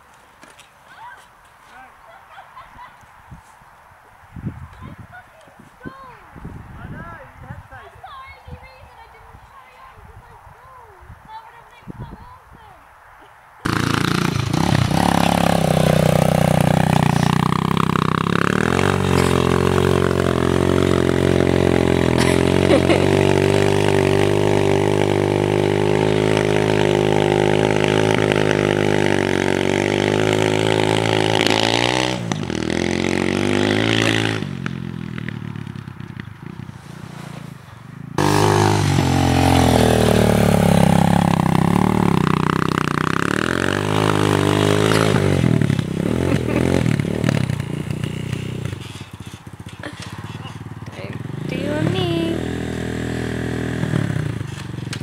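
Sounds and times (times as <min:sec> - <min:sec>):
dirt bike engine revving: 0:13.6 - 0:55.0.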